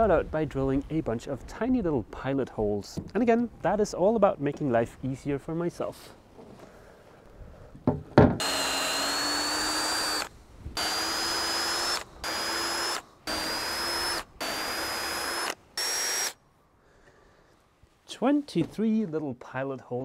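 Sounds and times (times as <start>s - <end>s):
knock: 7.8s - 8.4s
power drill whine: 8.4s - 16.4s.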